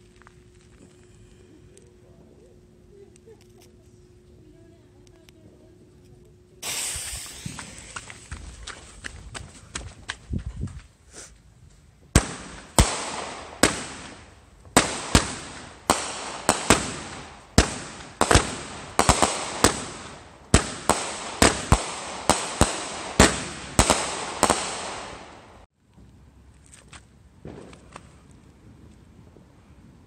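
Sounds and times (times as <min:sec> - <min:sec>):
fireworks bangs: 0:06.6 - 0:08.3, 0:12.1 - 0:25.7, 0:27.4 - 0:28.8.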